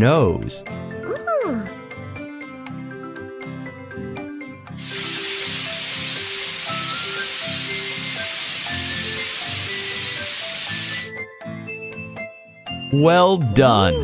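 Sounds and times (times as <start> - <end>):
light background music: 0.0 - 14.0
spray paint hiss: 4.8 - 11.1.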